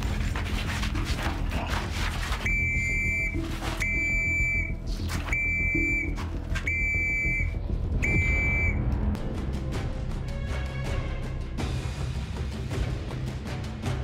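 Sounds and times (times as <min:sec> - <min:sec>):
high electronic beeps: 0:02.5 - 0:08.8.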